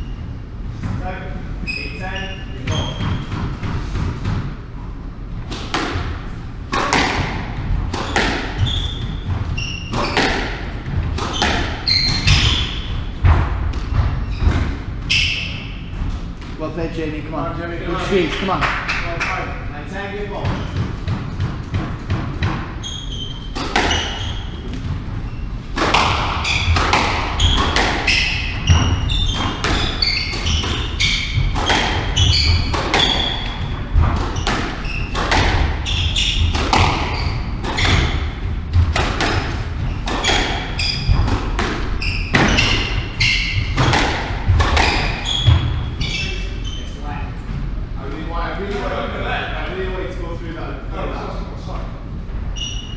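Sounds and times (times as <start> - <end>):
shoes squeaking on wooden floor: 1.6 - 3.3, 7.9 - 13.1, 13.8 - 16.4, 22.6 - 47.8
squash ball cracking off rackets: 6.7 - 8.7, 9.9 - 12.6, 25.7 - 45.7.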